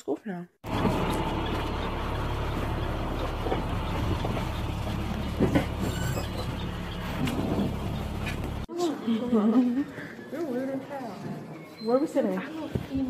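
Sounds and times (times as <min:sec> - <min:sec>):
vehicle interior road noise: 0:00.6 - 0:08.7.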